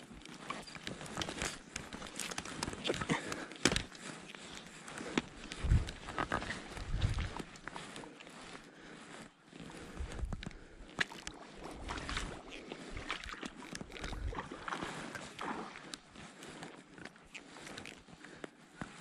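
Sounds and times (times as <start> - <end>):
shallow water sloshing: 11.0 - 16.0.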